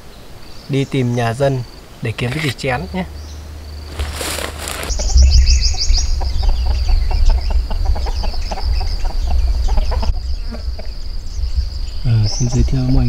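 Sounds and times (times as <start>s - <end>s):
insects droning: 0.0s - 13.0s
chicken wings flapping: 3.9s - 5.0s.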